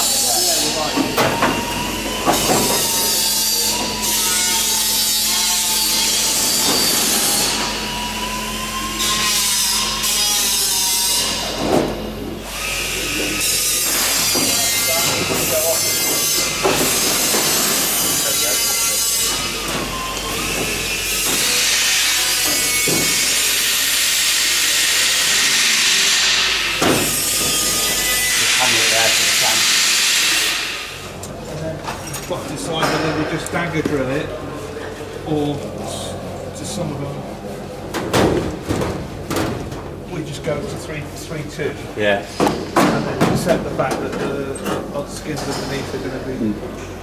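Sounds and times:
tool rasping hiss: 0:12.5 - 0:31.2.

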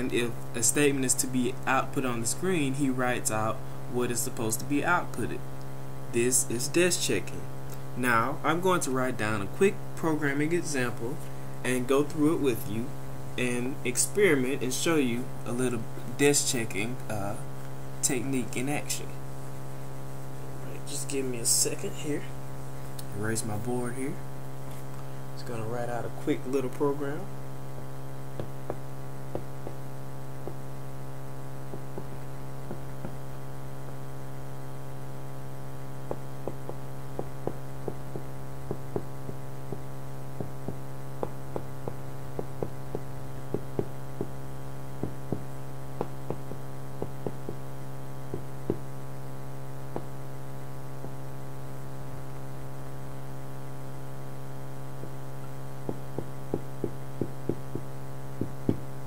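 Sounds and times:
electrical mains hum: 0:00.0 - 0:59.0
marker tapping on whiteboard: 0:28.4 - 0:29.8, 0:31.7 - 0:33.2, 0:36.1 - 0:44.4, 0:45.0 - 0:47.6, 0:48.3 - 0:48.9, 0:49.9 - 0:50.1, 0:55.8 - 0:58.9.

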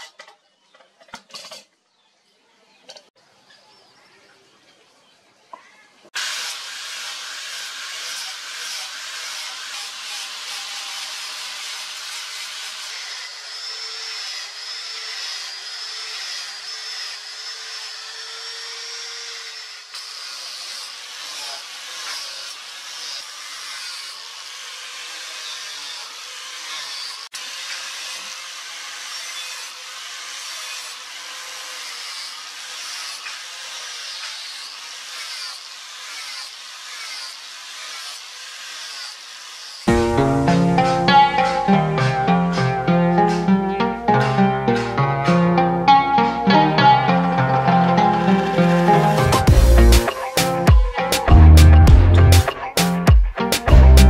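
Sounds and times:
abrasive disc grinding steel: 0:39.8 - 0:52.8.

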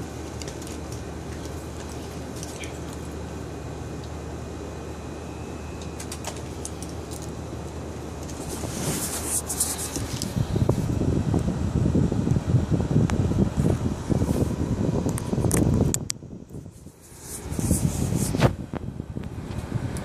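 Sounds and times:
low hum and rumble: 0:00.0 - 0:20.0
rustling crackle: 0:08.2 - 0:10.9.

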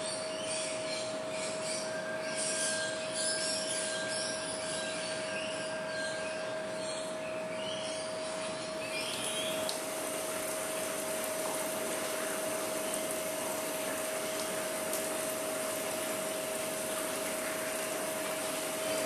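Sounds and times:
machine hum with airy rushing: 0:04.4 - 0:19.0.

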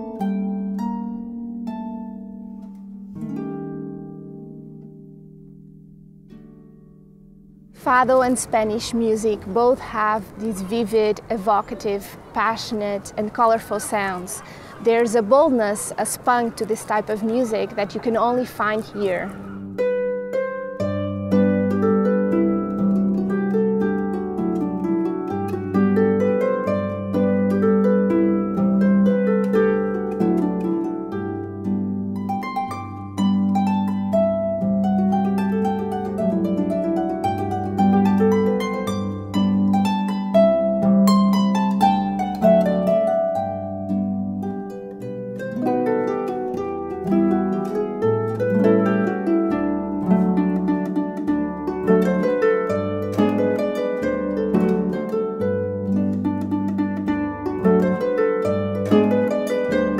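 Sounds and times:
harp playing melody: 0:00.0 - 0:59.9.

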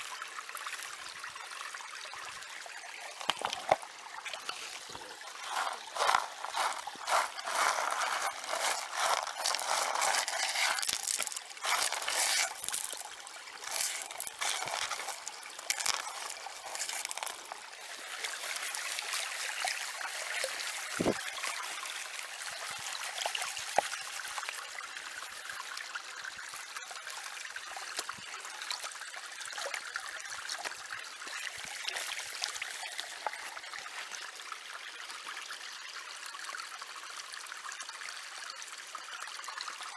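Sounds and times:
creek trickling: 0:00.0 - 0:39.9
water sloshing in a plastic pan: 0:03.1 - 0:24.6.

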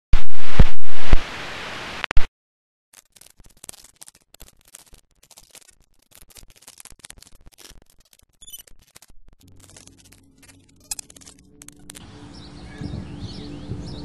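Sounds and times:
faint clicking and crackling: 0:03.0 - 0:12.0.

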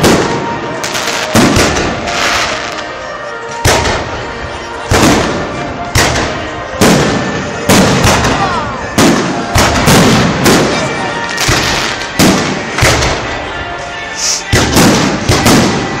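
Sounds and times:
firework crackle and echo: 0:00.0 - 0:16.0.

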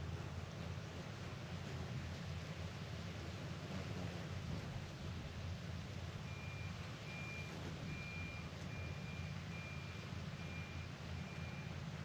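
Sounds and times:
reversing alarm beeping: 0:06.3 - 0:11.8.

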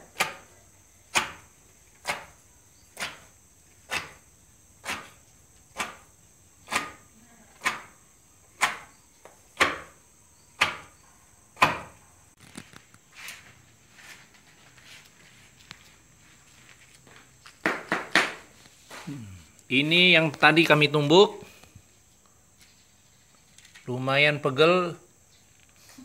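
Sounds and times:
pestle pounding in wooden mortar: 0:01.1 - 0:04.2, 0:04.8 - 0:08.0, 0:08.6 - 0:08.9, 0:09.5 - 0:10.0, 0:10.6 - 0:11.0, 0:11.6 - 0:12.0, 0:17.6 - 0:18.5.

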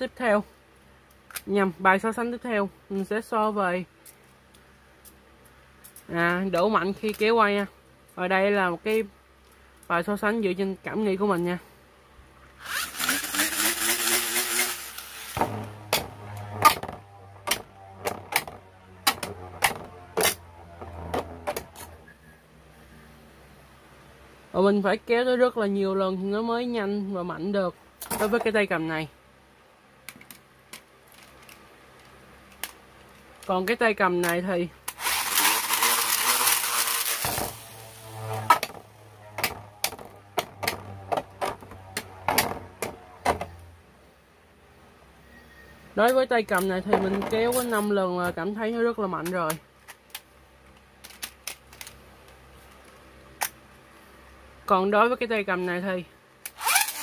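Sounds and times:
spinning top humming: 0:12.6 - 0:22.2, 0:34.9 - 0:43.7
sharp plastic clacks: 0:49.2 - 0:53.6.

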